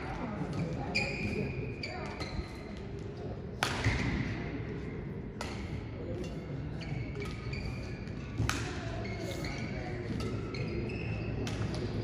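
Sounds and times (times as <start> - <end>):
murmur of spectators: 0.0 - 12.0
shoes squeaking on court: 0.6 - 3.0, 6.7 - 12.0
racket striking shuttlecock: 3.6 - 4.2, 5.4 - 5.8, 8.4 - 8.8.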